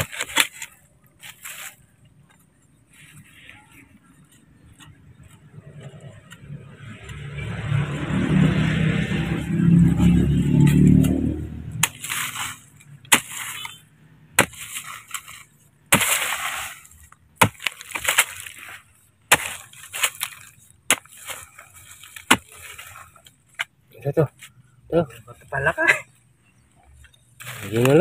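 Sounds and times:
shovel striking hard soil: 0.0s - 1.8s, 9.9s - 23.7s, 27.4s - 28.0s
dirt scraping and tossed: 0.0s - 28.0s.

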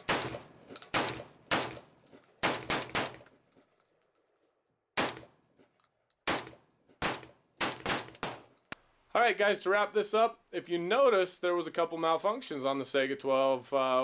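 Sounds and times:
shotgun shots with echo: 0.0s - 1.8s, 2.4s - 3.3s, 5.0s - 5.4s, 6.3s - 8.5s.

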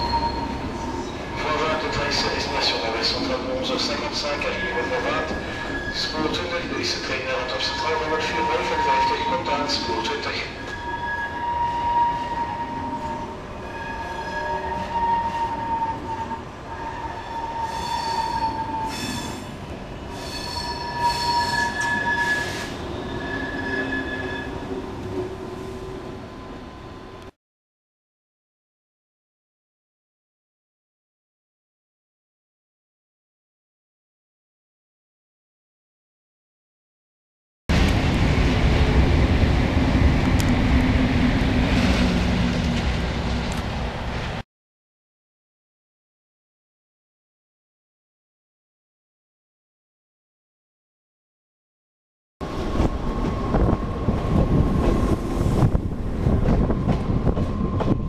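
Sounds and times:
train wheels squealing on rails: 0.0s - 2.8s, 4.6s - 24.8s
train running gear rumble: 37.7s - 44.4s, 52.4s - 58.0s.

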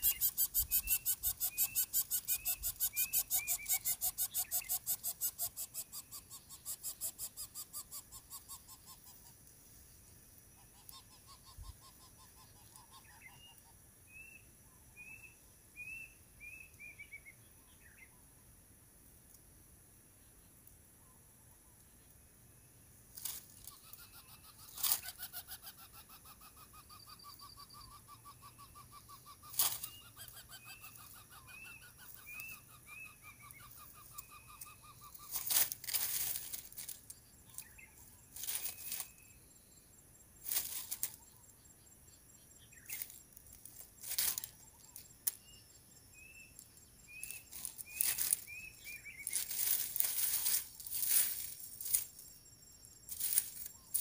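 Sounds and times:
repeated high chirps: 0.0s - 9.0s
dry grass crackling and rustling: 35.3s - 37.1s, 38.4s - 39.1s, 40.4s - 41.2s, 42.9s - 44.5s, 47.2s - 52.2s, 53.1s - 54.0s.

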